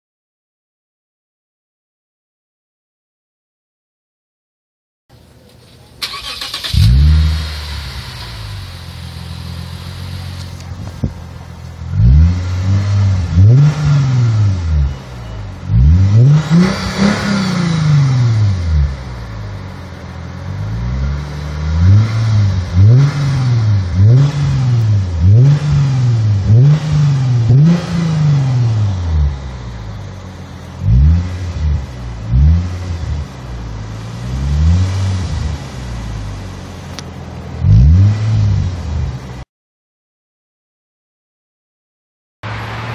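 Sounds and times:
car engine idling and revving: 5.1s - 39.4s, 42.4s - 42.9s.

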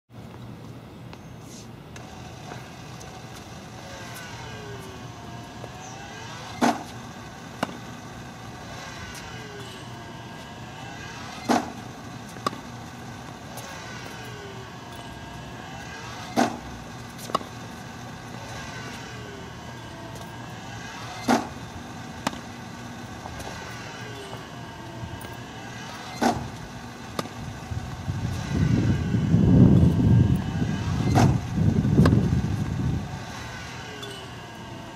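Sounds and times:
background hum: 0.2s - 34.9s
racquet hitting tennis ball: 6.5s - 7.8s, 11.4s - 13.7s, 16.3s - 17.6s, 21.2s - 21.6s, 22.2s - 22.5s.

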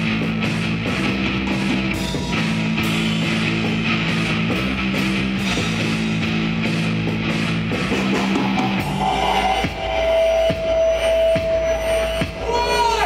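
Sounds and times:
drum kit cymbals: 0.0s - 12.6s
distorted electric guitar chords: 0.0s - 13.0s.

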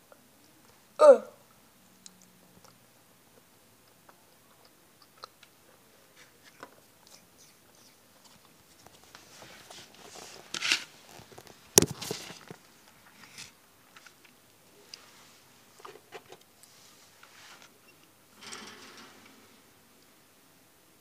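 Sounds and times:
person chewing gummy candies: 3.8s - 5.6s
close rustling: 6.1s - 13.6s.

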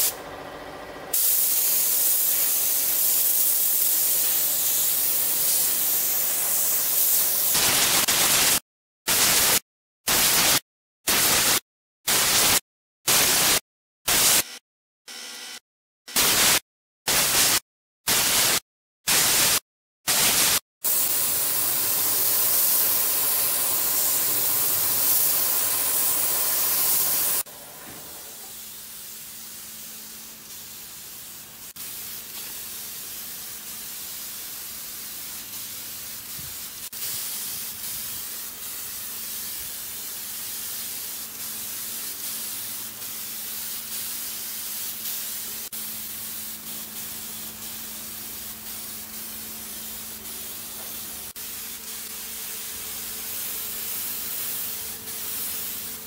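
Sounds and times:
paint spray gun hissing: 1.1s - 14.4s, 16.2s - 27.5s, 28.2s - 56.0s.

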